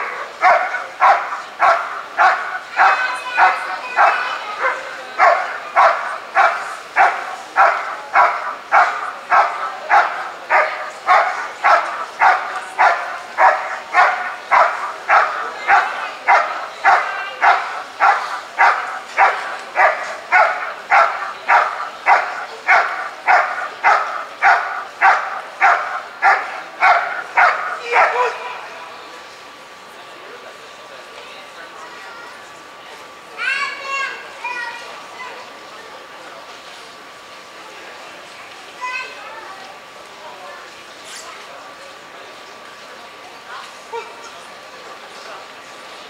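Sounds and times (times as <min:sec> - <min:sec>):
dog barking: 0:00.0 - 0:28.5.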